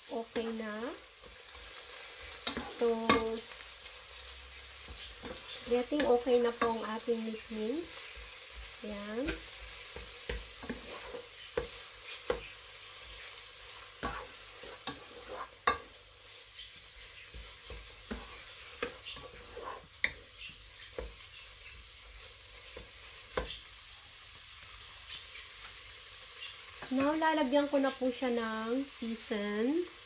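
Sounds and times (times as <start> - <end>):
meat sizzling in a pot: 0.0 - 30.0
spatula scraping and knocking pot: 4.8 - 6.9, 8.0 - 13.2, 13.8 - 16.0, 16.6 - 21.8.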